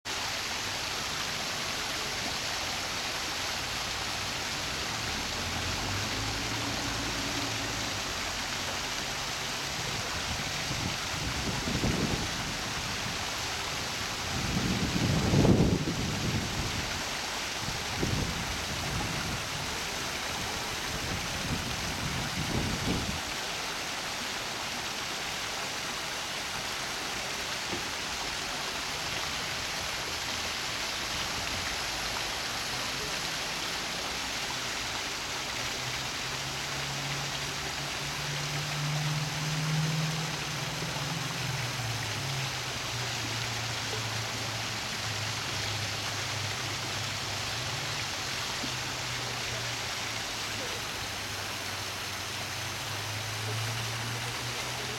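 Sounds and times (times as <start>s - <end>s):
running water: 0.0s - 54.9s
wind buffeting microphone: 10.3s - 13.2s, 14.2s - 17.0s, 17.6s - 19.9s, 20.6s - 23.2s.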